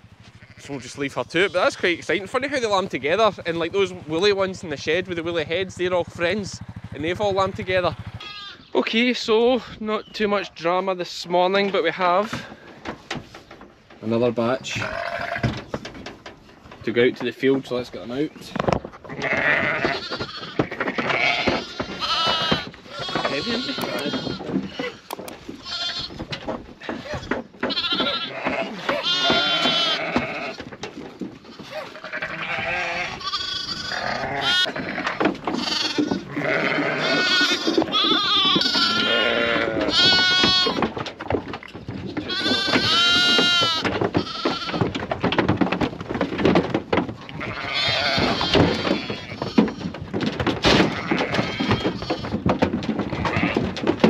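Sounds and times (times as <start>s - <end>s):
sheep and lambs bleating: 0.2s - 4.4s, 8.2s - 8.8s, 14.6s - 15.6s, 19.1s - 26.2s, 27.6s - 30.6s, 31.5s - 40.9s, 42.0s - 44.9s, 47.3s - 50.0s, 50.6s - 52.4s, 53.1s - 53.8s
knocks on trailer ramp: 34.8s - 54.0s.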